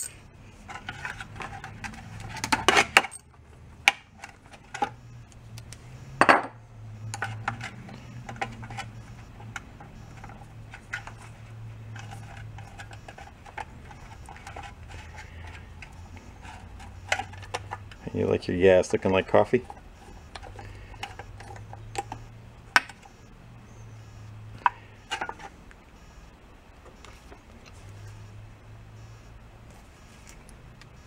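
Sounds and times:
metal parts clinking in tray: 0:00.0 - 0:03.3
low steady hum: 0:00.0 - 0:31.0.

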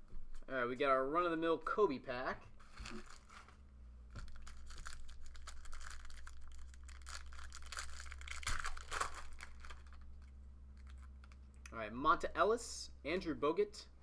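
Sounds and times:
low steady hum: 0:00.0 - 0:14.0
foil wrapper tearing and crinkling: 0:02.7 - 0:03.4, 0:04.2 - 0:11.4.

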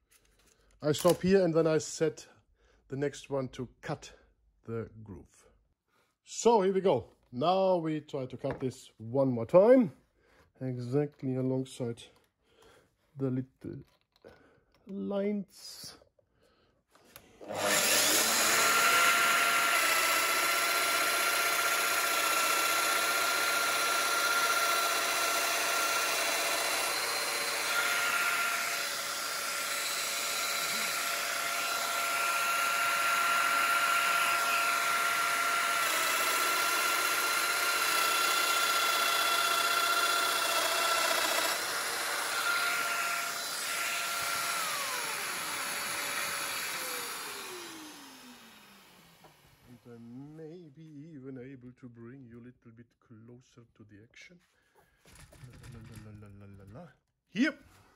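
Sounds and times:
power joiner cutting wood: 0:17.1 - 0:49.8.

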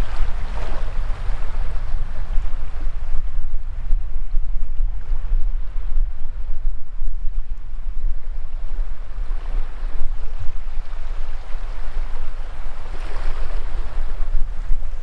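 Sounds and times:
waves washing over sand: 0:00.0 - 0:03.8
wind buffeting microphone: 0:00.0 - 0:15.0.

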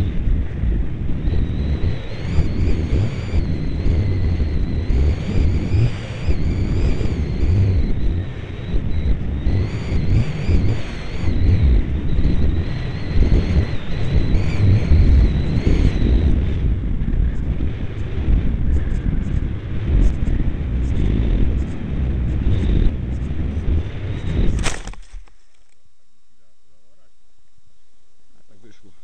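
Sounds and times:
wind buffeting microphone: 0:00.0 - 0:25.3
model aircraft motor whining: 0:00.0 - 0:25.8.

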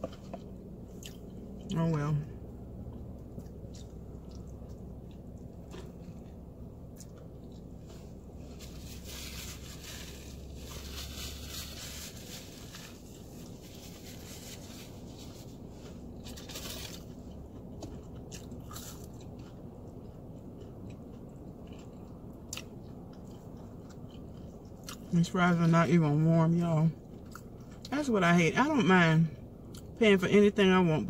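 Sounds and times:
person chewing a sandwich: 0:00.0 - 0:01.7, 0:02.4 - 0:25.1, 0:27.0 - 0:27.9
crunching of fried breading: 0:08.3 - 0:25.1.

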